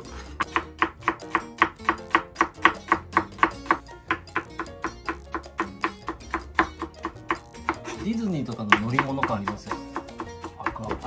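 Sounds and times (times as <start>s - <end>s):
background music with plucked guitar: 0.0s - 11.0s
knife chopping on cutting board: 0.0s - 11.0s.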